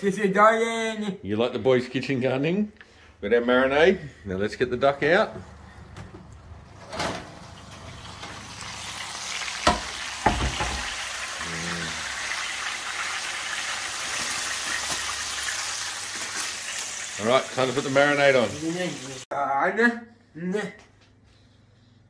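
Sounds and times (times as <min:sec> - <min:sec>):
fat sizzling in a roasting tray: 0:07.5 - 0:19.3.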